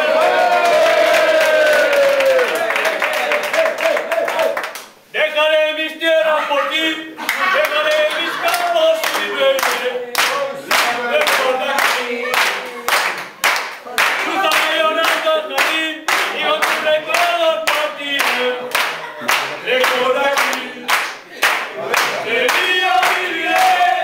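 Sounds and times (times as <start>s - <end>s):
people clapping in rhythm: 0.0s - 5.1s, 7.2s - 24.0s
group singing a chant: 8.0s - 13.2s, 13.8s - 24.0s.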